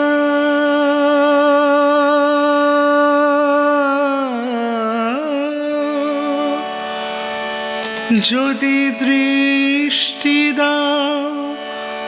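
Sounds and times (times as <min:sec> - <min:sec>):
man singing: 0:00.0 - 0:06.8, 0:08.0 - 0:12.0
harmonium: 0:00.0 - 0:12.0.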